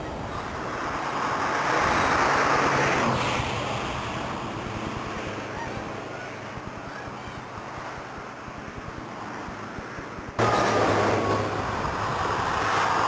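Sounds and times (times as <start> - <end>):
traffic and wind hiss: 0.0 - 13.0
vehicle passing close by: 10.4 - 13.0.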